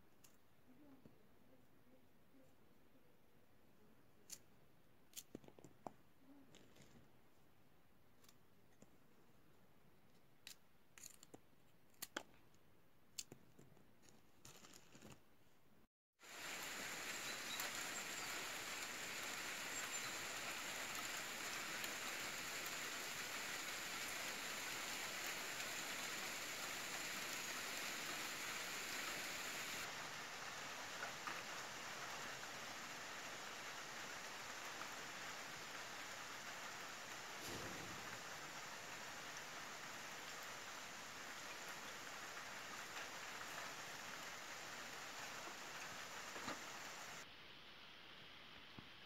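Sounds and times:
steady rain falling: 16.2s - 49.0s.

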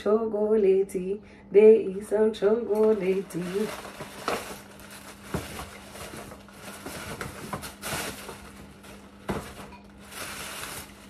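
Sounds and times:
tissue paper rustling: 2.9s - 11.0s.

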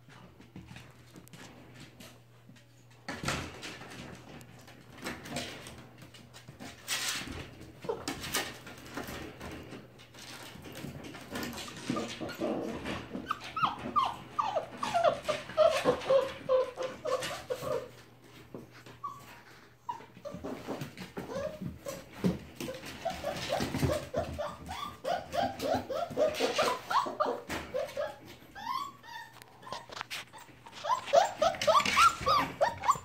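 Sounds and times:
puppies' paws scrabbling: 0.0s - 33.0s
puppies whimpering: 11.6s - 18.0s, 18.9s - 33.0s.

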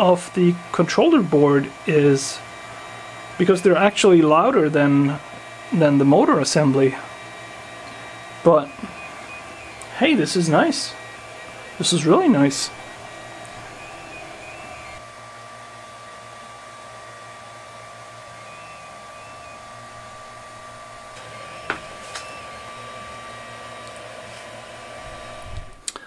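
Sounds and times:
cooling fan whirring: 0.0s - 26.0s
quiet stepper motors: 0.0s - 26.0s
sharp clicks: 7.8s - 10.0s.

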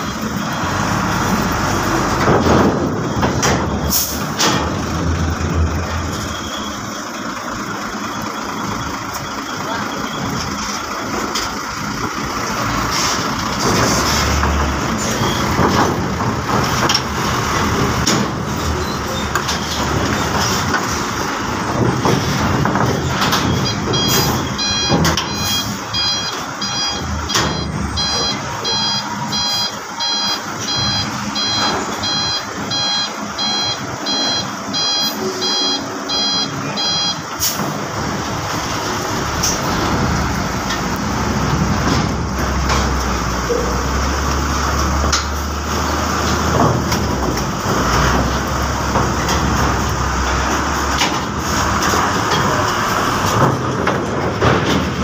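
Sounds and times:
reversing alarm beeping: 0.0s - 10.8s, 15.0s - 15.7s, 23.0s - 37.6s
diesel truck engine running: 0.0s - 55.0s.

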